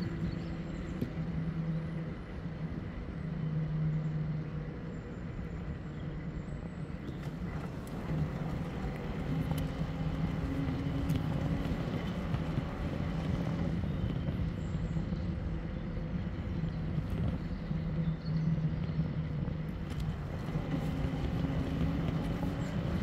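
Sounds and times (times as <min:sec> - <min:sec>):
low motor hum: 0:00.0 - 0:23.0
wind noise: 0:07.0 - 0:23.0
tyre noise: 0:07.2 - 0:15.1, 0:19.7 - 0:23.0.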